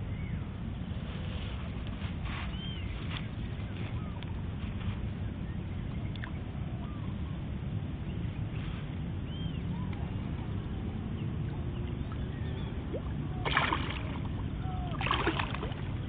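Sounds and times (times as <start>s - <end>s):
low outdoor rumble: 0.0s - 16.0s
whistled bird calls: 2.4s - 4.2s, 9.2s - 10.2s, 11.6s - 13.5s.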